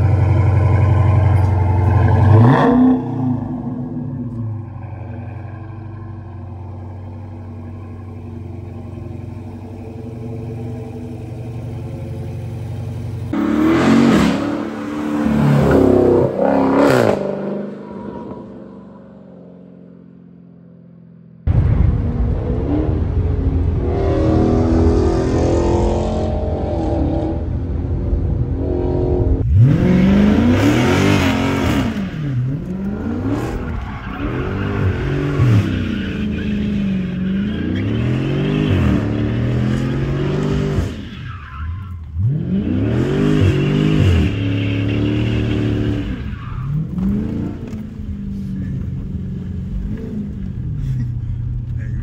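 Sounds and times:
car engine revving: 0.0 - 19.7, 21.5 - 52.0
tyre squeal: 43.2 - 47.1.

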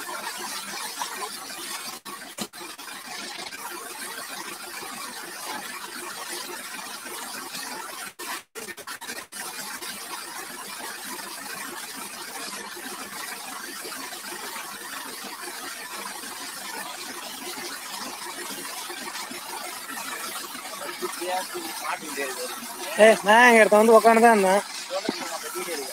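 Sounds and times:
water spray hitting metal: 20.2 - 25.9.

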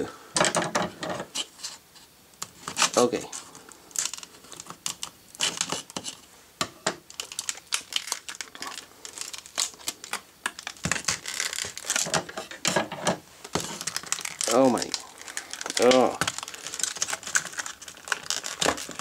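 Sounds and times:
plastic packaging crackling: 2.4 - 6.3, 6.9 - 19.0.

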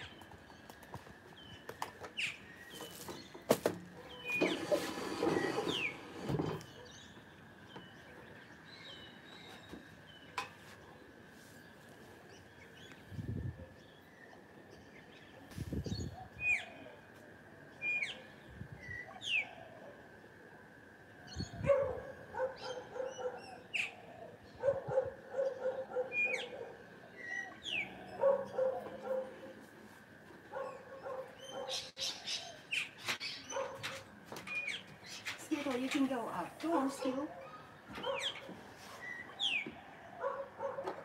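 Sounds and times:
birds chirping: 0.0 - 17.0, 21.3 - 29.6, 30.5 - 41.0
dog barking: 21.6 - 23.6, 24.6 - 26.8, 28.2 - 29.5, 30.5 - 31.9, 33.5 - 34.0, 38.0 - 38.4, 40.2 - 41.0.

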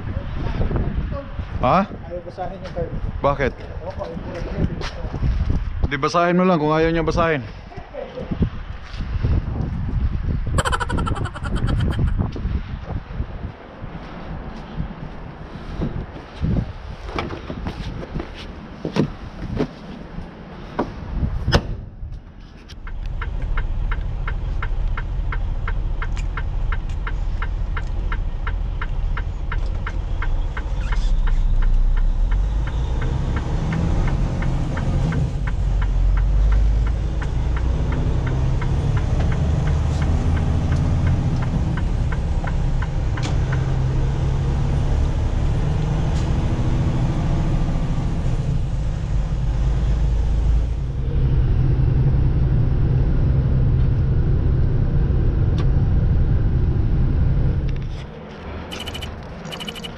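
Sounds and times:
rapid even ticking: 10.6 - 12.2, 58.7 - 59.9
diesel engine rumbling: 22.8 - 59.9.

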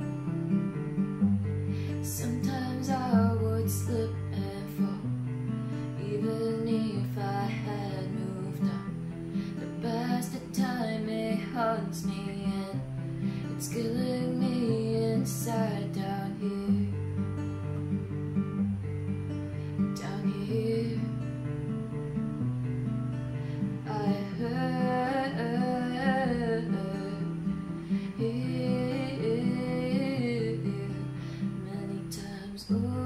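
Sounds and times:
acoustic guitar chords: 0.0 - 33.0
girl singing: 1.9 - 5.1, 5.9 - 8.9, 9.5 - 12.8, 13.4 - 17.0, 19.9 - 21.4, 23.8 - 33.0.

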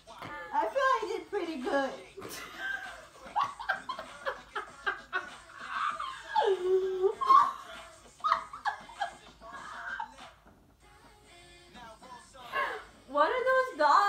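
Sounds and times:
women laughing: 2.2 - 10.2.

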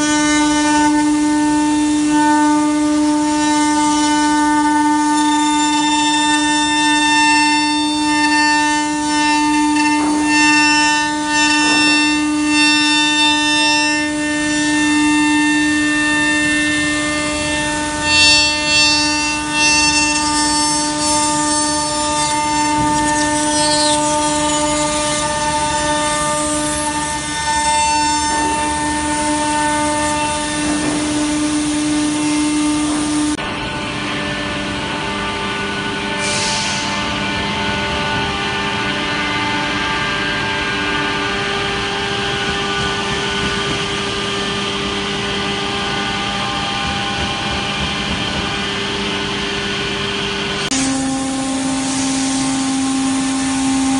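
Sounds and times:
cutter carving wood: 0.0 - 33.4
router spindle whining: 0.0 - 53.9.

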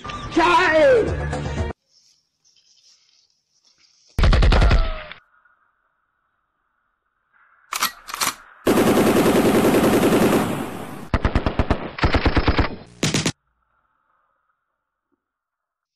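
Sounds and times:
automatic gunfire: 8.7 - 13.4.

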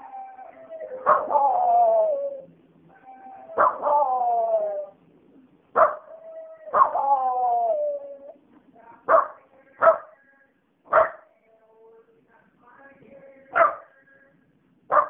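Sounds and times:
dog howling: 0.0 - 5.0, 5.8 - 8.4
dog yelp: 1.0 - 1.5, 3.0 - 4.1, 5.8 - 7.0.

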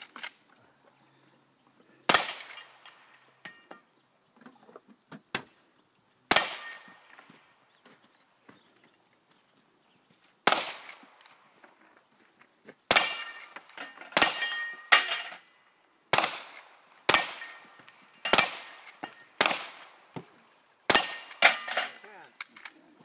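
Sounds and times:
steel targets ringing: 12.9 - 15.6, 20.9 - 22.0.

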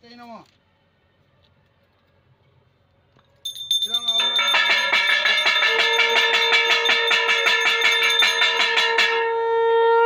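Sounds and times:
hand bell rung rapidly: 3.5 - 9.2
conch shell blown: 4.7 - 10.0.

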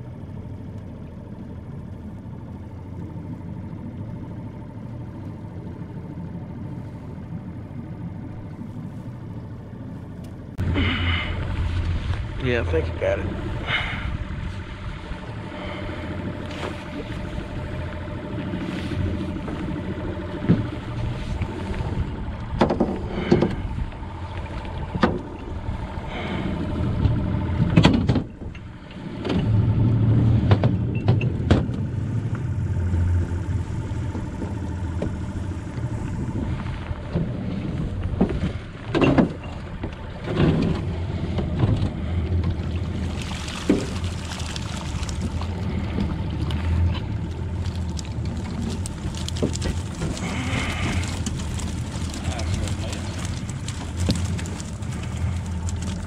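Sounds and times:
water splashing: 0.0 - 27.5, 32.0 - 56.0
boat motor idling: 0.0 - 56.0
net clattering against metal boat: 22.5 - 23.6, 38.0 - 56.0.

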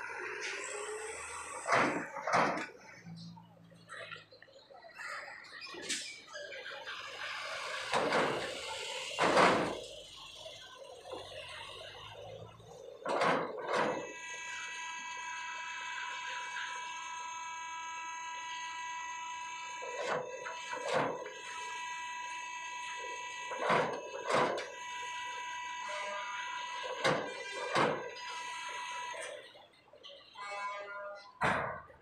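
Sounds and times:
cars clanking over steel ramp: 0.0 - 4.1, 7.6 - 10.3, 10.9 - 14.2, 19.8 - 21.4, 23.4 - 24.8, 26.8 - 28.4, 30.4 - 32.0
steady buzzer-like tone: 6.7 - 32.0.

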